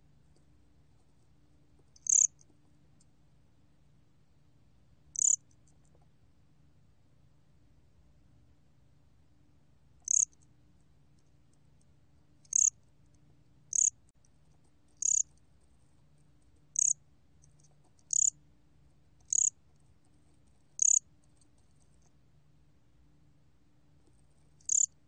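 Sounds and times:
cricket chirping: 1.9s - 2.4s, 5.1s - 5.5s, 10.0s - 10.5s, 12.4s - 12.8s, 13.7s - 14.0s, 15.0s - 15.4s, 16.7s - 17.0s, 18.0s - 18.4s, 19.2s - 19.6s, 20.8s - 21.1s, 24.6s - 25.0s.

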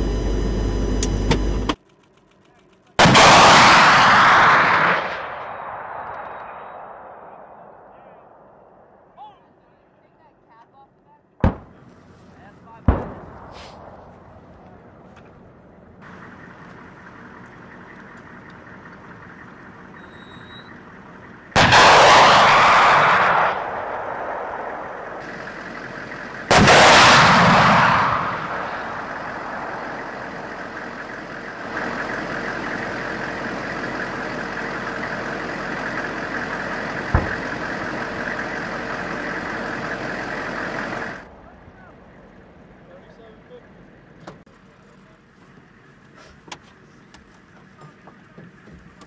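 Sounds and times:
steady engine noise: 0.0s - 3.1s, 13.4s - 49.0s
missile launch blast: 3.0s - 7.9s, 21.5s - 25.3s, 26.4s - 30.6s
rushing roar: 20.9s - 42.8s.

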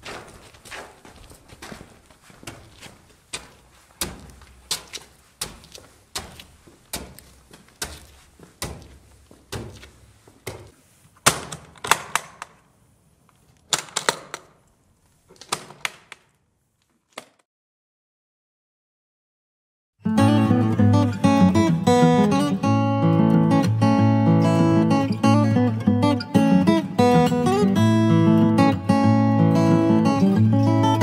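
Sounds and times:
footsteps on concrete stairs: 0.0s - 10.9s
metal latches snapping open: 11.2s - 12.6s, 13.6s - 14.6s.

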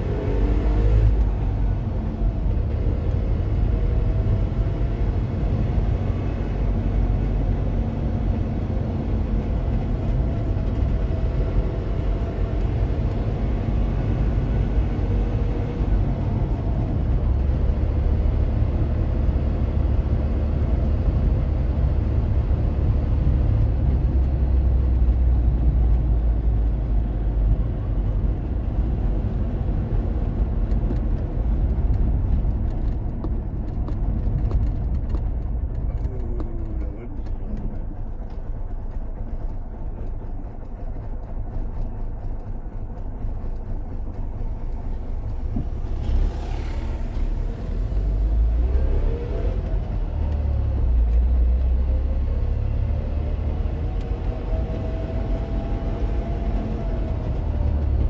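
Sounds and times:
road and tyre noise: 0.0s - 58.0s
two-stroke car engine running: 25.9s - 46.4s
rattle in car: 27.5s - 48.7s.

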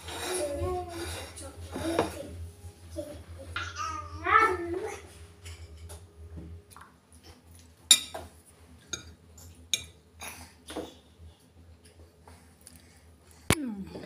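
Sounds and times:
fork clinking on ceramic plate: 7.9s - 8.3s.

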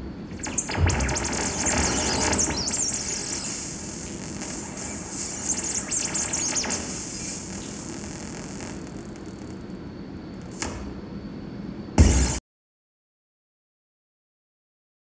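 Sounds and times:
high-pitched squeals and squeaks: 0.3s - 9.6s
hiss: 3.0s - 9.5s.

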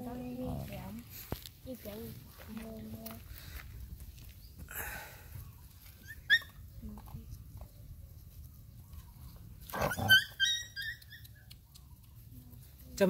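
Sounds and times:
puppy yelping: 6.0s - 6.6s, 9.7s - 11.6s.

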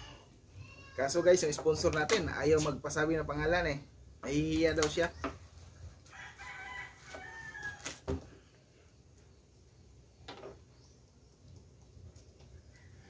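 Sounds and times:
rooster crowing: 6.0s - 8.1s.

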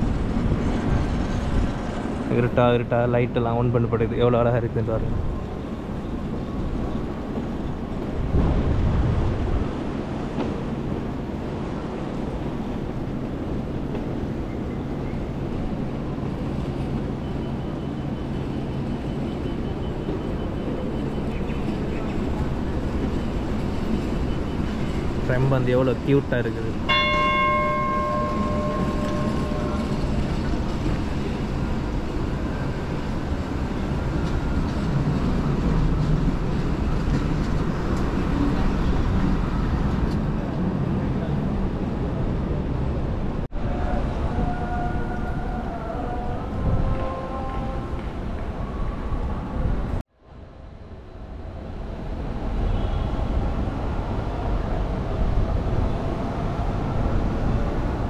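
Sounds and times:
tram rumbling past: 0.0s - 58.0s
tram bell ringing: 14.4s - 36.0s.

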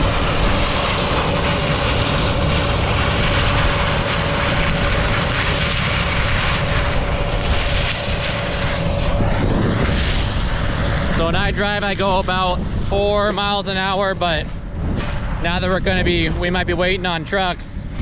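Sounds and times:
combine harvester running: 0.0s - 18.0s
machine whine: 0.0s - 18.0s.

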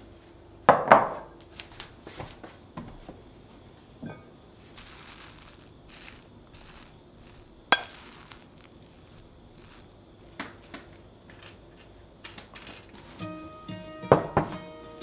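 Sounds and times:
acoustic guitar music: 13.1s - 15.0s.

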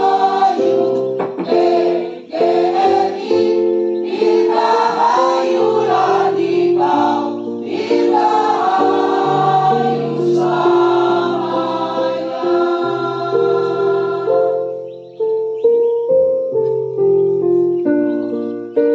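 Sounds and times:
mixed choir singing: 0.0s - 14.8s.

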